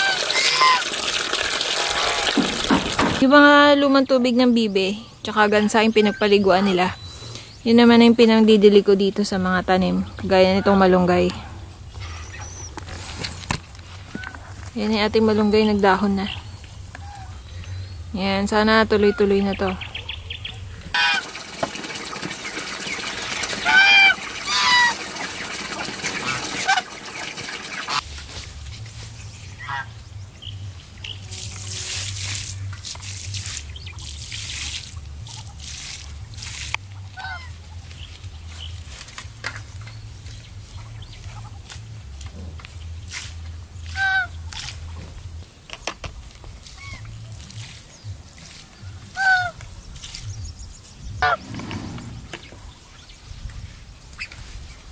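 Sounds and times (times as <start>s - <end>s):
geese honking: 0.0s - 2.4s, 10.2s - 11.4s, 18.5s - 19.9s, 20.9s - 28.0s, 29.6s - 30.0s, 36.9s - 37.8s, 43.9s - 44.7s, 49.1s - 49.6s, 51.2s - 52.5s
water splashing onto ground: 0.0s - 3.3s, 20.9s - 28.7s, 31.3s - 42.0s.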